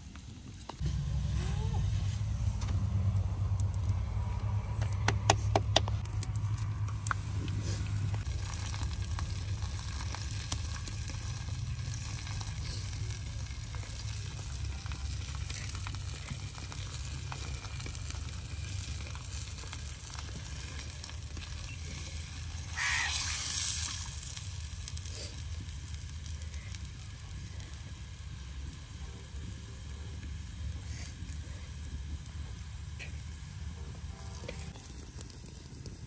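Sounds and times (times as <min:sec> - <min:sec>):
flatbread sizzling in oil: 0:07.1 - 0:29.0
loud hiss: 0:22.6 - 0:24.1.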